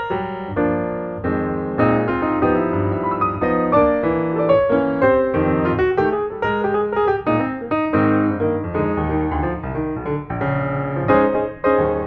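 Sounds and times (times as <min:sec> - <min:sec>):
piano music: 0:00.0 - 0:12.0.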